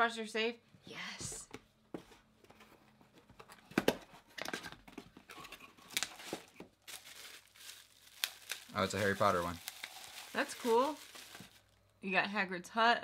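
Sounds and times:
paper rustling and crinkling: 0:03.3 - 0:11.8.

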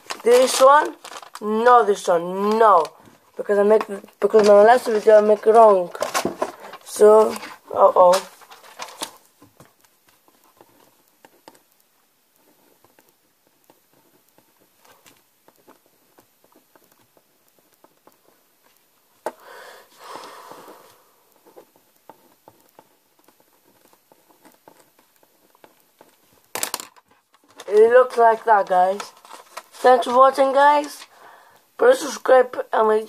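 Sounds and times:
pen scratching on paper: 0:10.1 - 0:18.7, 0:21.4 - 0:26.4.

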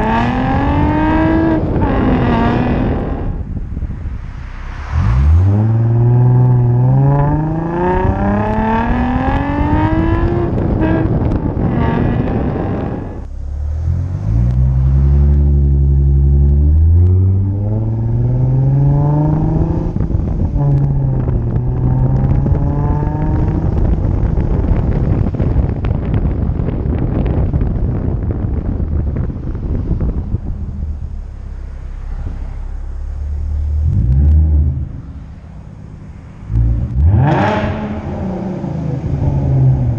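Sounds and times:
car engine accelerating hard: 0:00.0 - 0:39.9
wind noise on microphone: 0:00.0 - 0:39.9.

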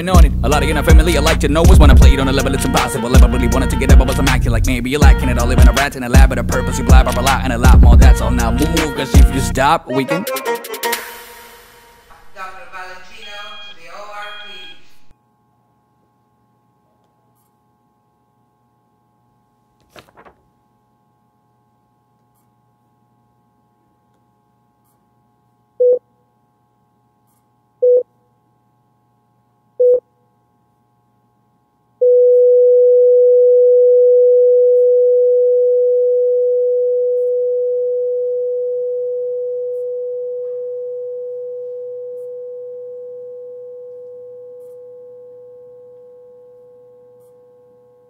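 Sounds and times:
long held electronic tone: 0:11.6 - 0:15.1, 0:32.0 - 0:48.0
electronic sine-wave beeps: 0:13.1 - 0:15.1.

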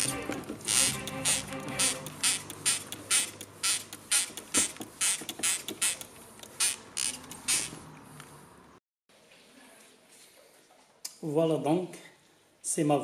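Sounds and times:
brushes scrubbing valve: 0:00.0 - 0:07.8.

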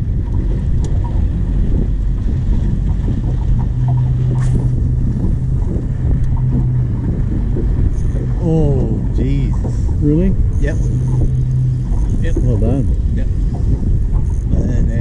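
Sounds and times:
low steady hum: 0:00.0 - 0:15.0
wind rumbling on microphone: 0:00.0 - 0:15.0.

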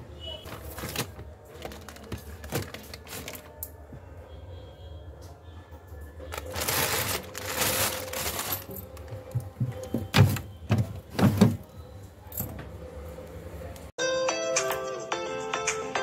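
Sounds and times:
plastic bags rustling: 0:00.4 - 0:03.6, 0:06.3 - 0:11.6
drawer and steel bowls clunking: 0:06.6 - 0:11.7.

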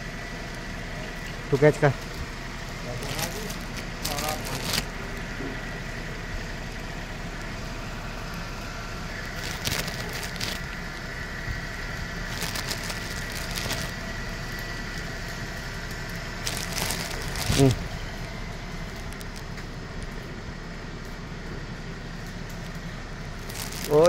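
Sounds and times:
background hum: 0:00.0 - 0:24.0
rustles: 0:00.0 - 0:24.0.

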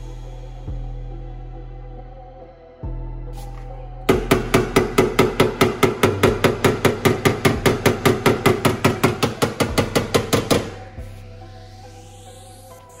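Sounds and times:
rapid hammer blows: 0:04.1 - 0:10.8.

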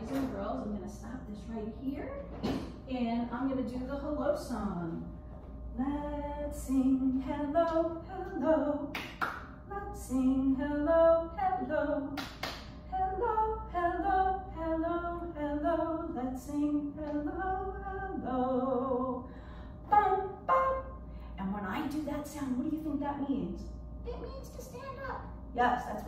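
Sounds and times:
woman singing unaccompanied: 0:05.8 - 0:09.0, 0:09.7 - 0:12.2, 0:12.9 - 0:19.2, 0:19.9 - 0:21.0.

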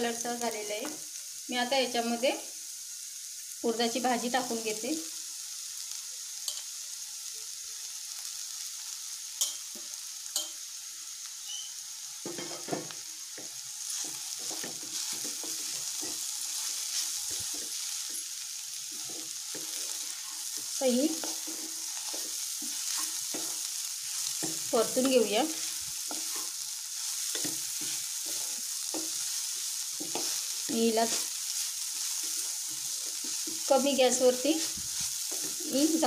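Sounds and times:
leaves sizzling in hot oil: 0:00.0 - 0:36.0
wooden spatula scraping pan: 0:13.9 - 0:18.2, 0:18.8 - 0:36.0.

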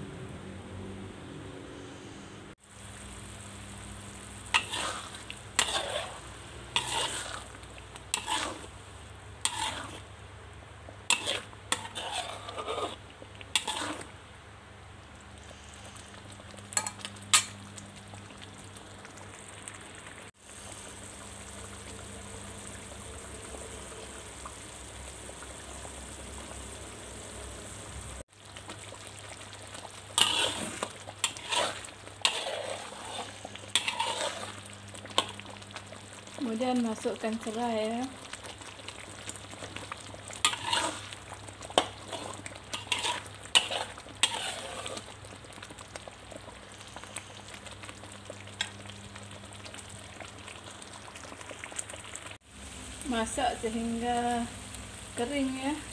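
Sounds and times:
paste sizzling in hot oil: 0:02.5 - 0:10.2, 0:11.0 - 0:14.2, 0:15.4 - 0:55.9
spatula scraping wok: 0:04.2 - 0:10.2, 0:11.0 - 0:14.2, 0:15.4 - 0:17.6, 0:27.4 - 0:46.0.

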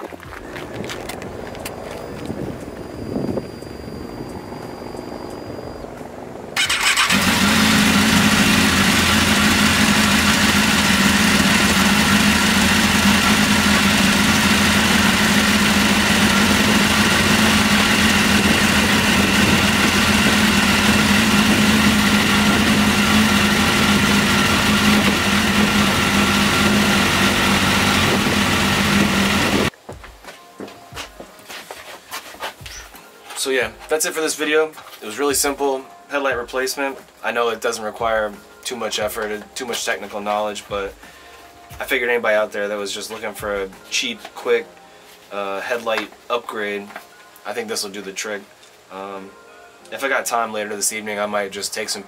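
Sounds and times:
motorcycle engine idling: 0:00.2 - 0:29.7.

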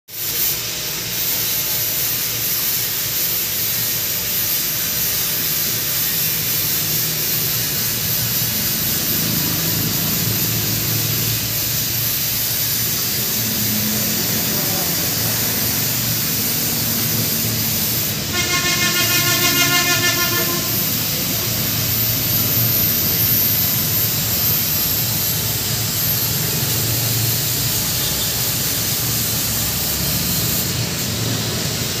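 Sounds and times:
aquarium air pump humming: 0:00.1 - 0:32.0
pitched tone: 0:13.1 - 0:24.0.

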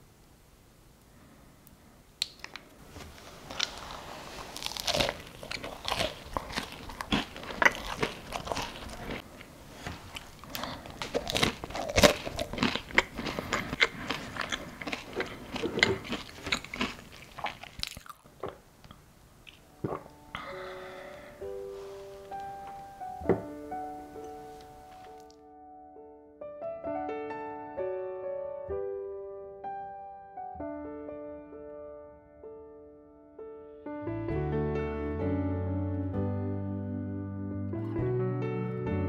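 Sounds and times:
chewing crunchy scone: 0:03.5 - 0:20.0.

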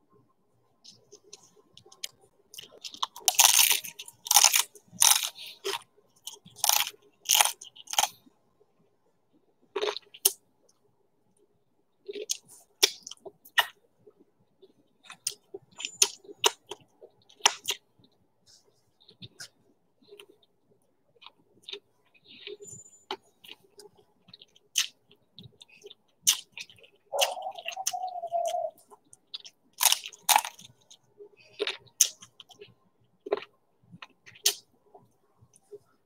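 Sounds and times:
crunchy food chewing: 0:00.9 - 0:08.3, 0:09.6 - 0:10.8, 0:12.0 - 0:36.0
mouth clicks: 0:24.8 - 0:30.0.

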